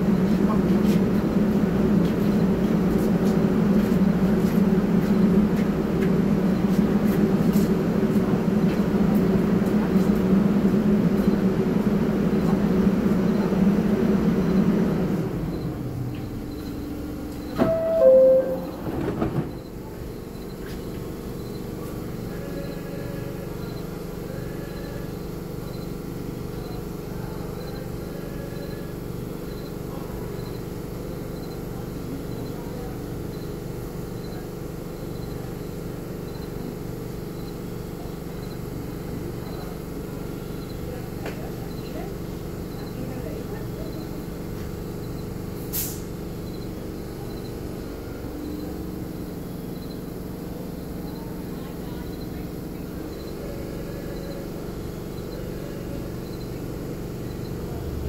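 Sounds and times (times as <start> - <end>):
subway train humming: 0.0 - 58.0
two-note door chime: 17.6 - 18.8
doors sliding shut: 17.6 - 19.6.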